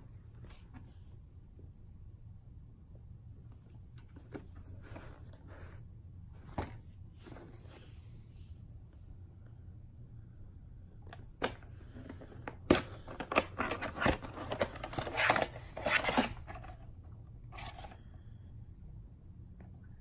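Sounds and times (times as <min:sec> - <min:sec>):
rustling of cassette: 0:11.1 - 0:18.0.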